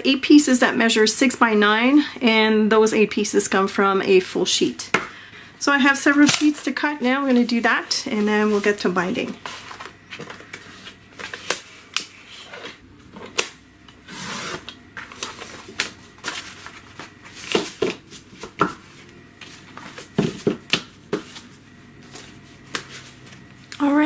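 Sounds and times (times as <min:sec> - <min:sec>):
paper trimmer slicing: 0:14.0 - 0:14.7.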